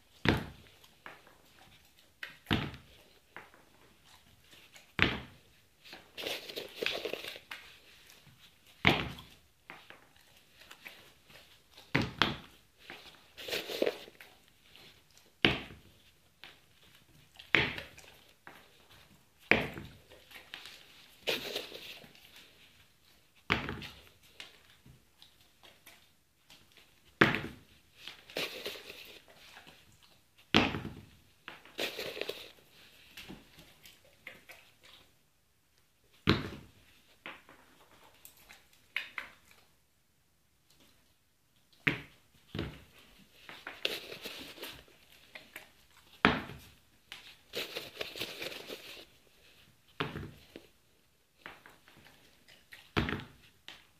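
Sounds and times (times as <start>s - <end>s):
shoe scuffs and clicks: 5.0s - 7.6s, 13.0s - 14.2s, 21.2s - 22.2s, 28.2s - 29.3s, 31.7s - 32.6s, 43.5s - 45.0s, 46.2s - 49.1s
sneaker tapping on tile floor: 11.9s - 12.5s.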